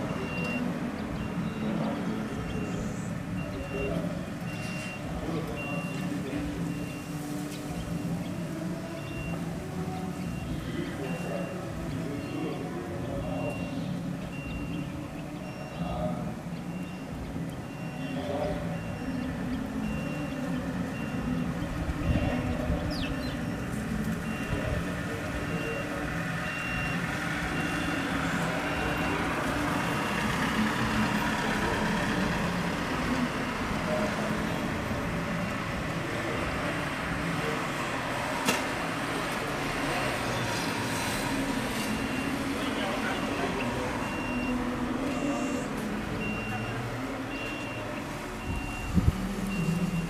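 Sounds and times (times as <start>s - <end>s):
reversing alarm beeping: 0.0s - 7.3s, 8.8s - 12.6s, 13.2s - 22.7s, 23.4s - 34.6s, 40.9s - 50.0s
vehicle engine rumbling: 0.0s - 50.0s.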